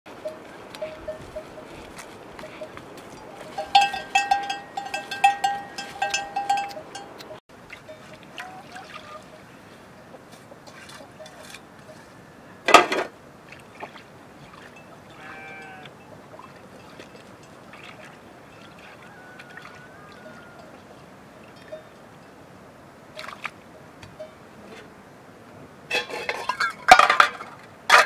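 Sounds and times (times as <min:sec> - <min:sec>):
cattle bells clanking: 0:00.1 - 0:09.4, 0:10.8 - 0:12.1, 0:21.5 - 0:22.3, 0:23.2 - 0:24.5, 0:25.9 - 0:28.0
water poured and sloshed: 0:07.6 - 0:09.4, 0:12.7 - 0:15.1, 0:16.3 - 0:20.2.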